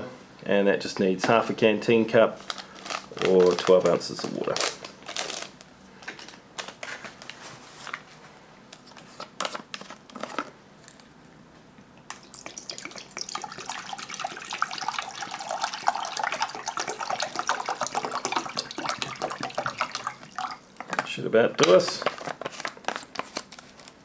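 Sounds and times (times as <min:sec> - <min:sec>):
water pouring into metal cup: 0:12.2 - 0:20.6.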